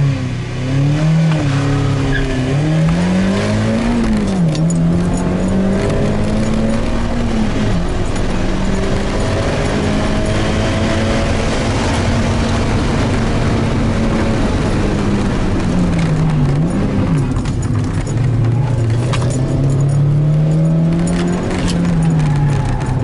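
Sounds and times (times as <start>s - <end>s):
car engine at high revs: 0.0s - 23.0s.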